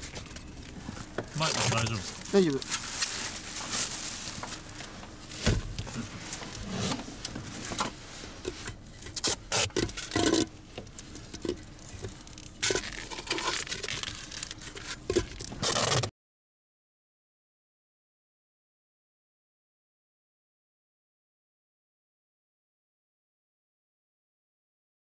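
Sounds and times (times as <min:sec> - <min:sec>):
tape rustling and crinkling: 0:00.0 - 0:16.1
tape tearing: 0:01.4 - 0:04.8, 0:08.9 - 0:10.5, 0:12.1 - 0:16.1.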